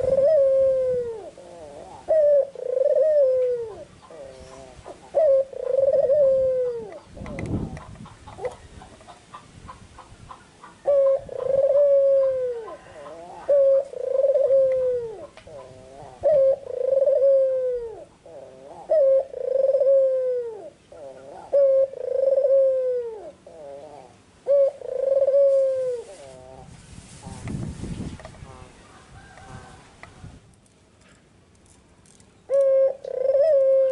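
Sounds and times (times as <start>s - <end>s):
dove cooing: 0.0s - 9.4s, 10.6s - 26.7s, 32.5s - 33.9s.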